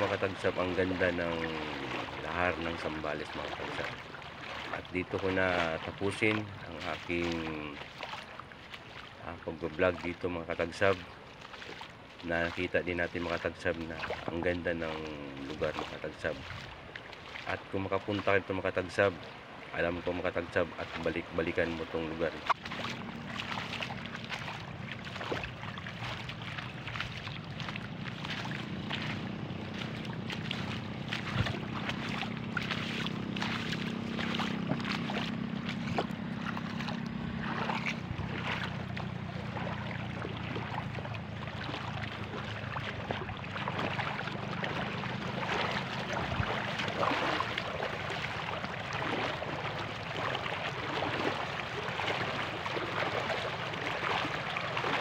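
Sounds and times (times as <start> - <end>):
river water splashing around feet: 0.0 - 55.0
steady low hum: 21.8 - 48.6.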